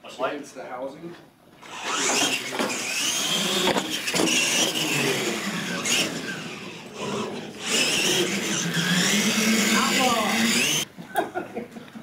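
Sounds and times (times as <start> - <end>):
electric toy truck motor whining: 1.6 - 10.9.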